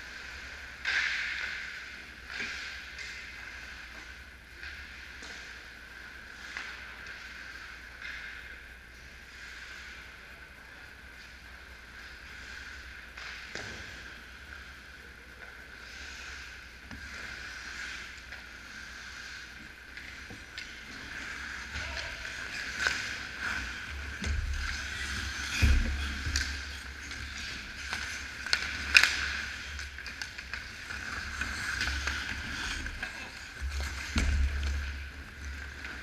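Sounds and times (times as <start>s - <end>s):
sticks and puck clacking: 0.2s - 5.6s, 15.4s - 36.0s
skates scraping ice: 15.7s - 36.0s.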